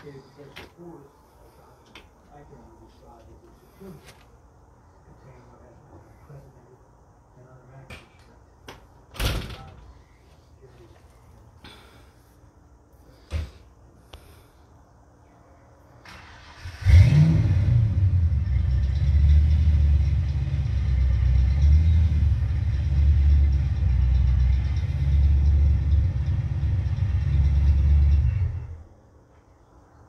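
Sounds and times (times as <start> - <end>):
car engine starting and idling: 16.0 - 28.9
engine switched off: 16.0 - 28.9.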